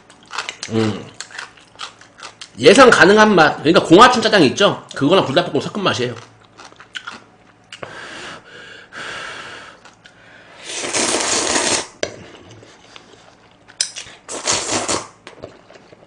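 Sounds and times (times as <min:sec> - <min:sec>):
person slurping noodles: 0:10.6 - 0:13.2, 0:14.3 - 0:15.7.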